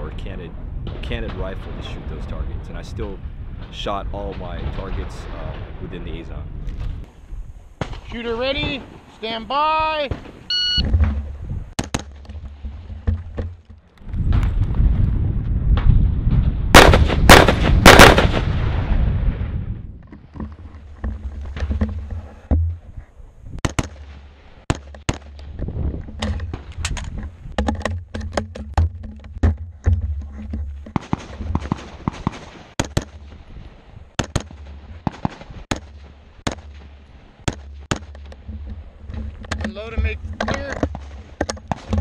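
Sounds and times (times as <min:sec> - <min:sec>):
rifle shots: 0:16.7 - 0:19.0, 0:31.0 - 0:33.4, 0:34.2 - 0:36.8.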